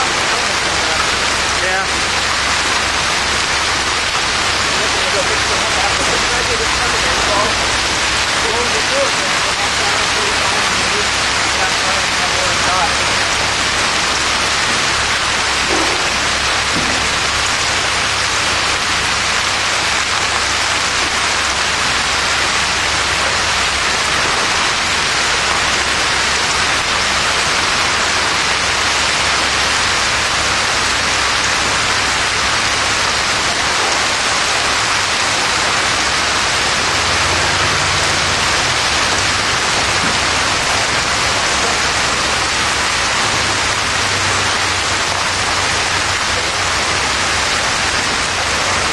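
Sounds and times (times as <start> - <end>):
heavy rain and hail on pavement: 0.0 - 48.9.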